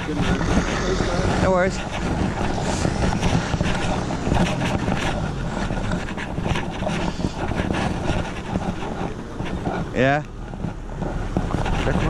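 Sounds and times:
car engine pulling away: 0:00.0 - 0:07.4
wind rumbling on microphone: 0:00.0 - 0:12.0.

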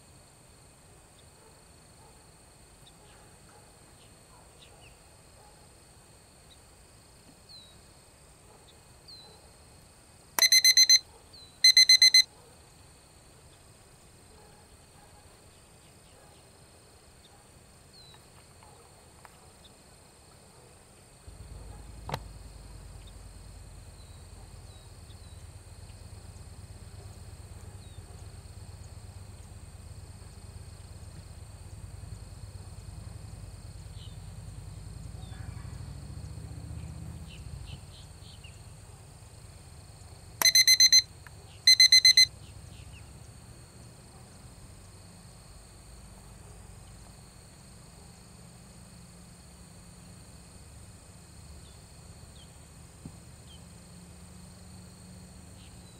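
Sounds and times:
electronic timer beeps: 0:10.4 - 0:11.0, 0:11.6 - 0:12.3, 0:40.4 - 0:41.1, 0:41.7 - 0:42.3.

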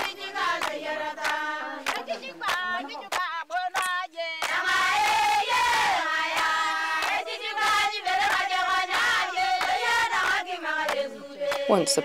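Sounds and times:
group of women singing: 0:00.0 - 0:12.0.

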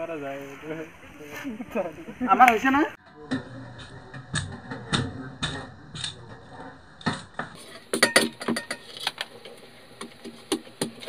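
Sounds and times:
steel pots knocking and clinking: 0:07.0 - 0:11.0.

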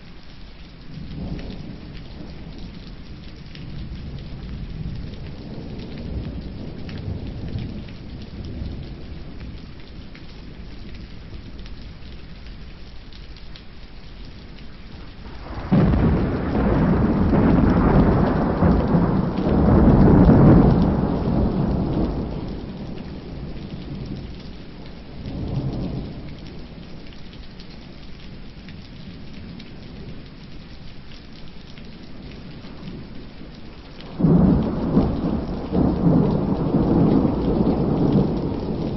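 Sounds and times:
steady rain: 0:00.0 - 0:38.9
thunder rumbling: 0:01.2 - 0:09.6, 0:15.0 - 0:24.4, 0:34.0 - 0:38.9.

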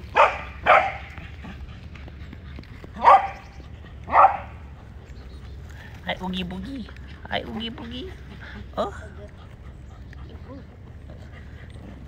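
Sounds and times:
dog barking: 0:00.1 - 0:01.2, 0:03.0 - 0:03.5, 0:04.1 - 0:04.6.

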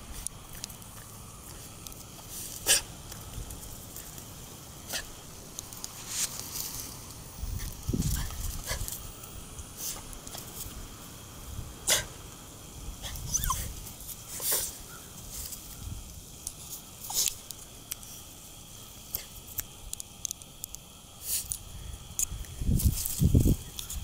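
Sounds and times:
dogs barking and whining: 0:13.0 - 0:15.0.

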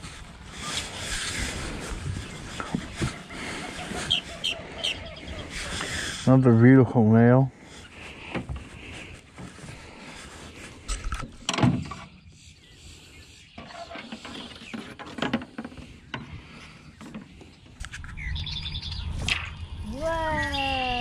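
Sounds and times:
bird trilling: 0:03.2 - 0:06.3, 0:18.1 - 0:19.1.

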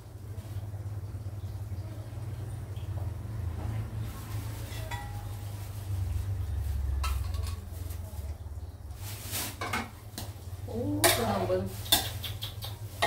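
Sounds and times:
liquid pouring: 0:00.0 - 0:03.6
bowl clinking against metal wok: 0:04.6 - 0:05.4, 0:07.0 - 0:07.8.

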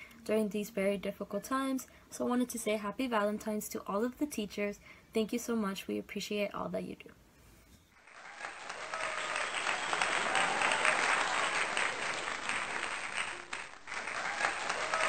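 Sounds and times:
crowd applauding: 0:08.0 - 0:15.0.

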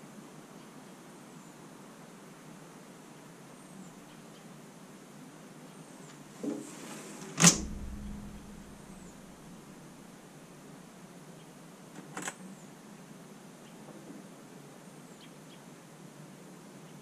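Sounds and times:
faint hiss: 0:00.0 - 0:17.0
sharp bang with low rumble: 0:07.4 - 0:10.0.

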